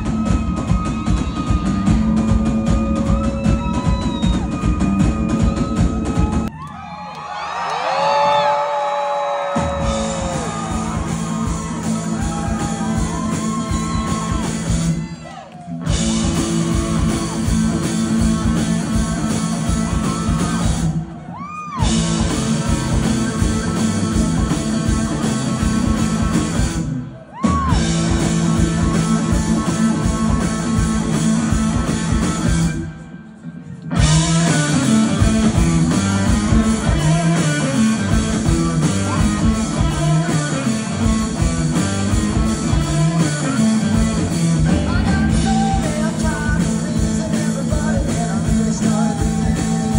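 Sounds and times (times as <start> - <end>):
bass guitar: 0.0 - 6.5, 9.5 - 33.2, 33.8 - 49.9
drums: 0.0 - 49.9
electric guitars: 9.4 - 49.9
person singing: 44.6 - 49.9.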